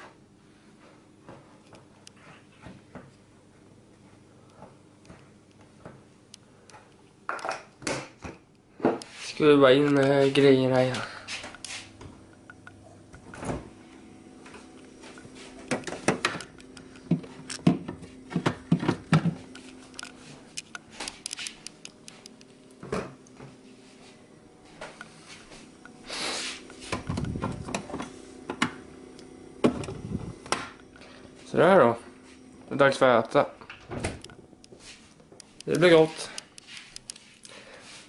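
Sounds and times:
refrigerator door opening and closing: 0:13.2 - 0:13.8, 0:26.9 - 0:28.8, 0:33.7 - 0:34.3.

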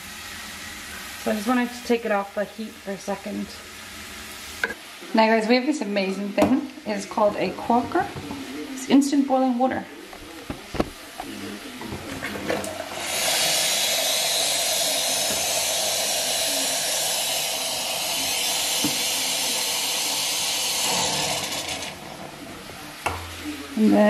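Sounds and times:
water pouring into saucepan: 0:12.2 - 0:22.4.

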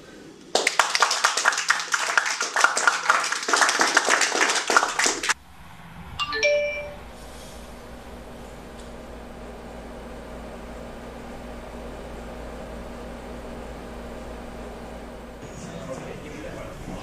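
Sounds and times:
applause: 0:00.5 - 0:05.4
phone text alert chime: 0:06.2 - 0:07.0.

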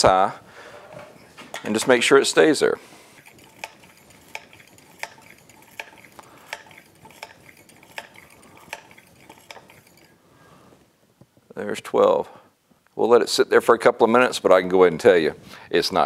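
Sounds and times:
hand pump clicking: 0:03.2 - 0:10.1.

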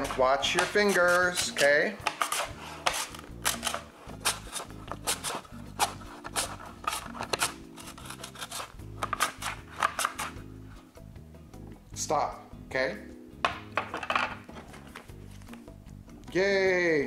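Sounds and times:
mandoline slicer rasping cuts: 0:00.0 - 0:10.4
background music: 0:00.0 - 0:17.0.

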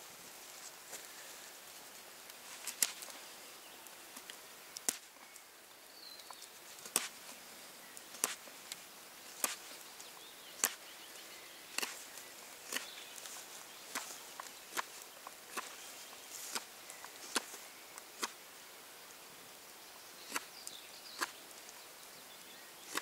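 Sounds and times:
knife carving wooden stick: 0:11.8 - 0:12.0, 0:21.2 - 0:21.4.

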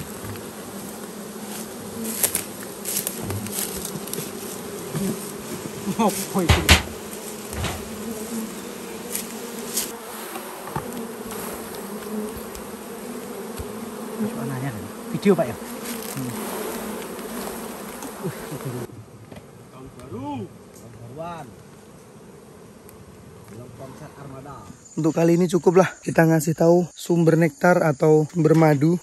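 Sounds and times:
honeybees humming: 0:00.0 - 0:26.9
loud knock: 0:06.5 - 0:07.9.

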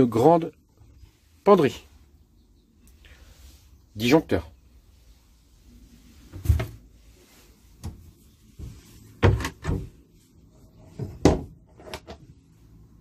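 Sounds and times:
cupboard doors knocking and clunking: 0:06.3 - 0:06.8, 0:08.6 - 0:10.0, 0:10.9 - 0:11.7.

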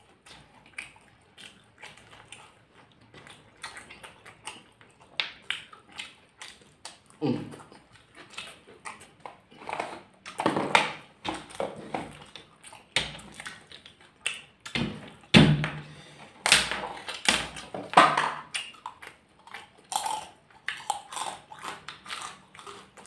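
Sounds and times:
chewing and lip smacks: 0:00.0 - 0:10.4, 0:11.0 - 0:15.3, 0:18.4 - 0:23.0
person humming mm: 0:07.2 - 0:07.7.

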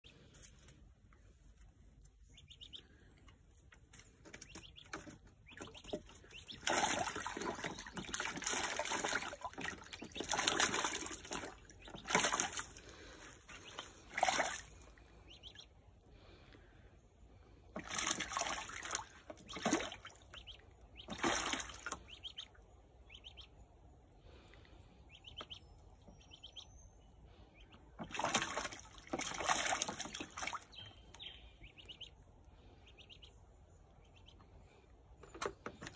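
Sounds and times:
duckling splashing in water: 0:04.3 - 0:15.7, 0:17.7 - 0:23.5, 0:27.5 - 0:32.2.

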